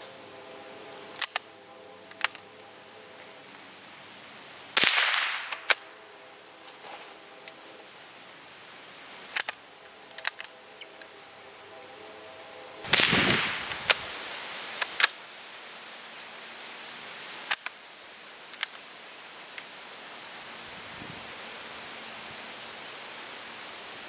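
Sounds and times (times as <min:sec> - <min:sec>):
rifle shot crack: 0:04.8 - 0:05.9, 0:12.9 - 0:14.0.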